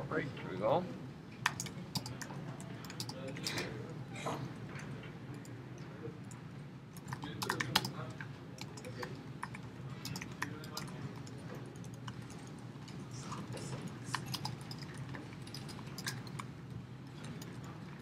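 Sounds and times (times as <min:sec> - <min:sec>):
steady low hum: 0:00.0 - 0:18.0
computer keyboard typing: 0:01.4 - 0:03.4, 0:07.0 - 0:13.4, 0:14.0 - 0:16.5.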